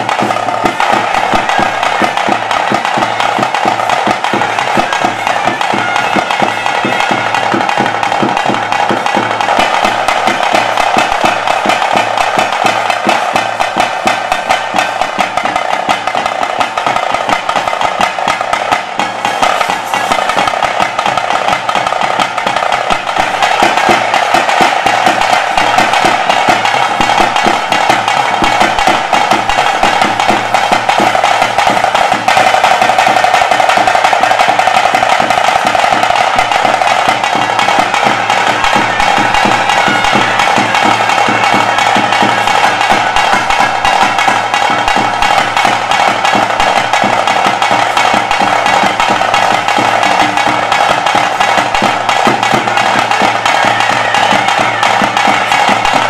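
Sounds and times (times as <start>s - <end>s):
held wind instrument note: 0.0s - 17.1s, 32.6s - 46.6s, 50.0s - 56.0s
fast drumming: 0.0s - 56.0s.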